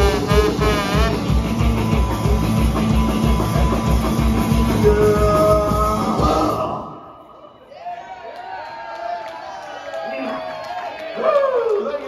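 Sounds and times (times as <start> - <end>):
live punk rock band: 0.0 - 6.7.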